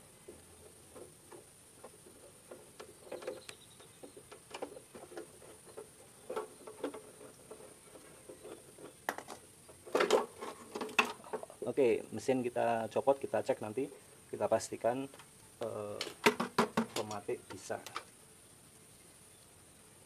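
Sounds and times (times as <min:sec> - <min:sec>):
knocks and handling: 0:00.2 - 0:11.7, 0:15.1 - 0:18.1.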